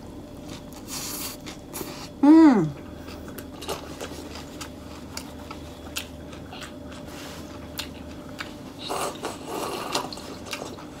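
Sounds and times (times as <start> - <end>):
chewing with wet clicks and crunches: 3.0 - 11.0.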